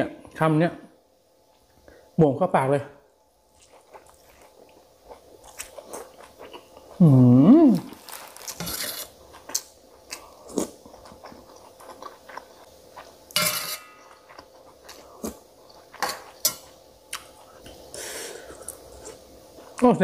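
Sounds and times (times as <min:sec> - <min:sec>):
person chewing food: 0:03.5 - 0:07.1, 0:07.7 - 0:19.8
metal spoon scraping steel plate: 0:08.6 - 0:09.1, 0:13.4 - 0:14.0.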